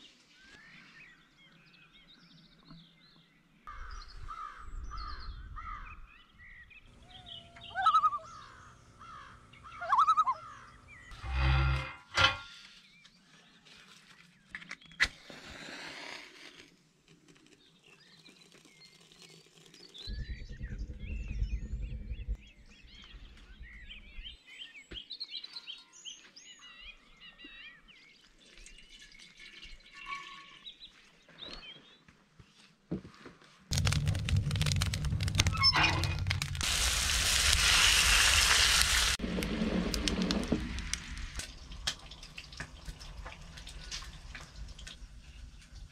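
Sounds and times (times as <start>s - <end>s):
small birds chirping: 0.0s - 11.2s, 17.5s - 32.7s
low rumble: 20.1s - 24.4s, 33.7s - 41.9s
wood fire crackling: 33.7s - 45.9s.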